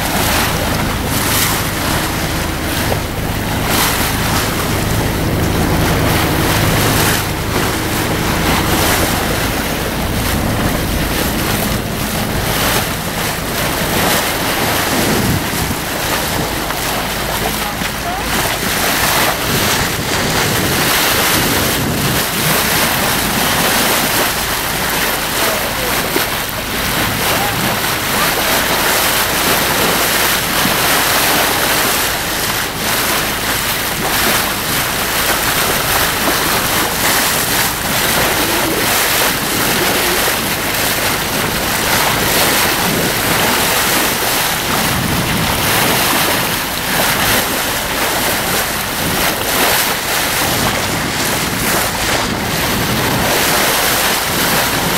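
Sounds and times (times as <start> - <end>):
water splashing along hull: 0.0 - 54.9
wind on microphone: 0.0 - 54.9.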